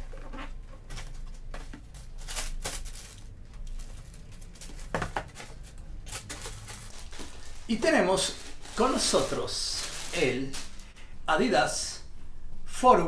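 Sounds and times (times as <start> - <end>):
tissue paper rustling: 1.9 - 11.0.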